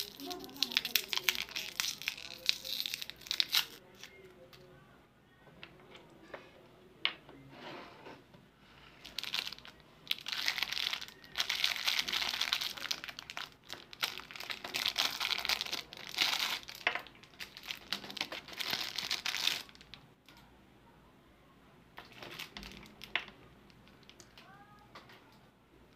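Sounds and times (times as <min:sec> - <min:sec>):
plastic wrapper crinkling: 0:00.0 - 0:04.2, 0:09.0 - 0:20.0, 0:22.0 - 0:24.4.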